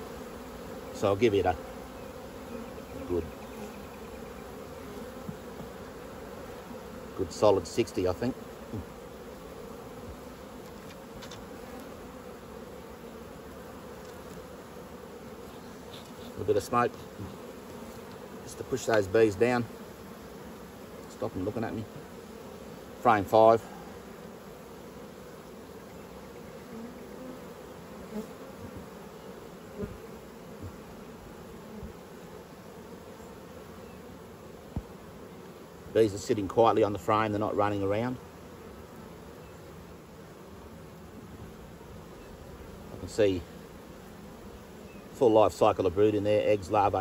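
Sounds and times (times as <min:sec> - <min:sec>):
honeybees buzzing: 0:00.0 - 0:47.0
faint knocks on hive frame: 0:05.2 - 0:05.8, 0:34.7 - 0:35.0.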